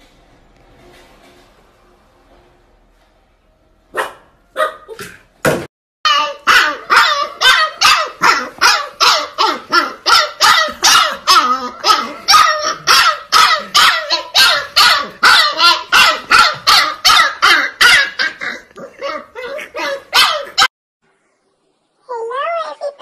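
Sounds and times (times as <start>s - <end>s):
puppy barking: 3.9s - 5.1s, 6.1s - 20.7s.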